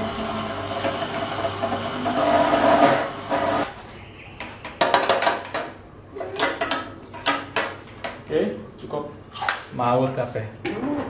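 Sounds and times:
electric motor humming: 0:00.0 - 0:03.7.

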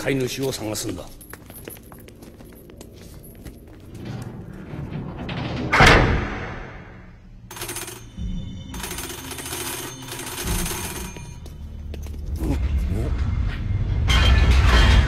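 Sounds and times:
telegraph bell ringing: 0:07.5 - 0:11.6.

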